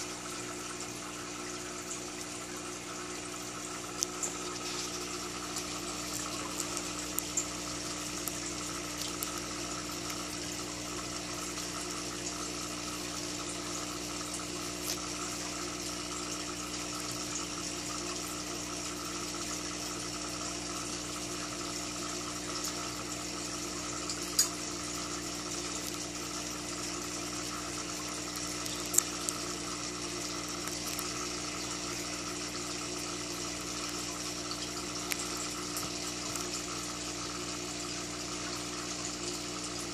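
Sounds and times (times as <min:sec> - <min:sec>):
air stone bubbling: 0:00.0 - 0:17.1, 0:24.8 - 0:39.0
filter water trickling: 0:00.0 - 0:39.9
steady electric hum: 0:00.0 - 0:39.9.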